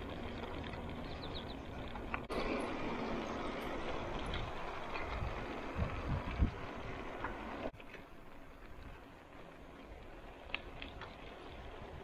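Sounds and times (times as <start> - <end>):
bicycle tyres rolling on asphalt: 0.0 - 12.0
wind noise on microphone: 4.1 - 7.3.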